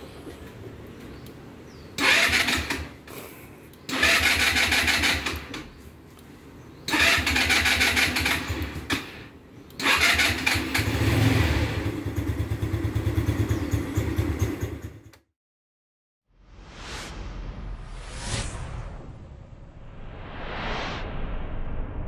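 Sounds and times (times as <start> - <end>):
scooter engine cranking: 2.0 - 3.2, 3.9 - 5.7, 6.9 - 9.2, 9.8 - 15.1.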